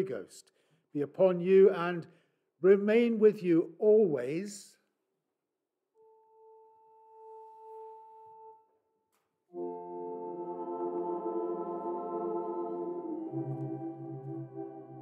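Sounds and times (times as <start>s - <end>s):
church organ chord: 9.5s - 15.0s.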